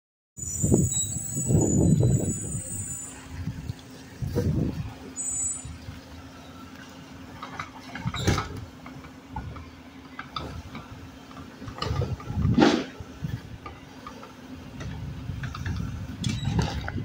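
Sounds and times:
garbage truck humming: 0:00.4 - 0:17.0
trash cart knocks and clatter: 0:07.4 - 0:13.4, 0:14.8 - 0:17.0.

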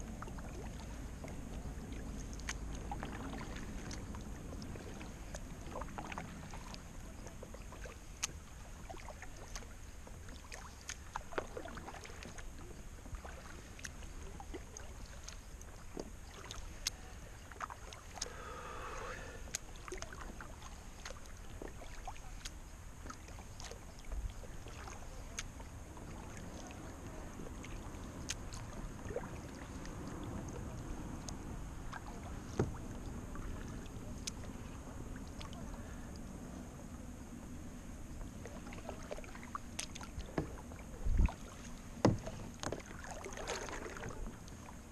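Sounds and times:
paddle dipping and dripping: 0:00.0 - 0:44.9
water knocking against kayak hull: 0:32.5 - 0:33.0, 0:39.8 - 0:41.4, 0:42.0 - 0:44.3.

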